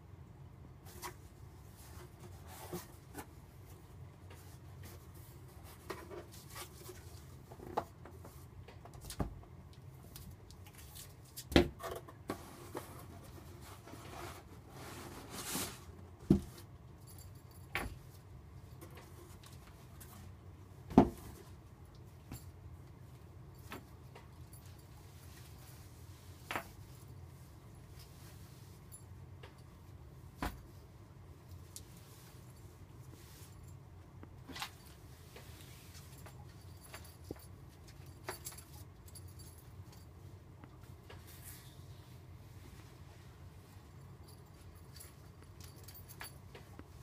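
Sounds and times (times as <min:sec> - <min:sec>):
items knocking and thumping: 0:16.2 - 0:16.6, 0:20.9 - 0:21.4.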